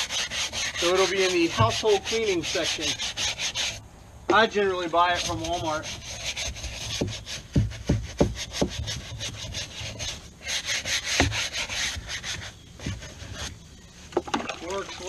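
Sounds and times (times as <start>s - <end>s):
scrubbing upholstery by hand: 0.0s - 3.6s
dull knocks: 1.5s - 1.9s, 6.8s - 9.0s.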